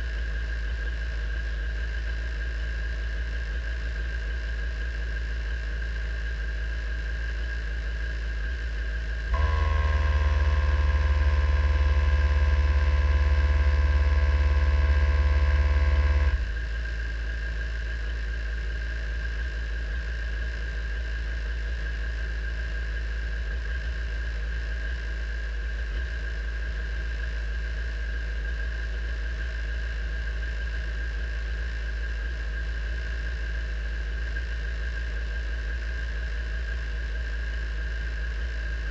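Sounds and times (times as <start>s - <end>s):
loud steady hum: 0.0s - 38.9s
racing car engine idling: 9.4s - 16.6s.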